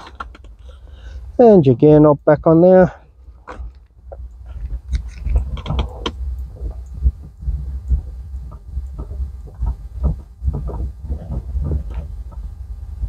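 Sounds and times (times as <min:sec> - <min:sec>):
microphone rubbing on sweater: 0:04.4 - 0:12.6.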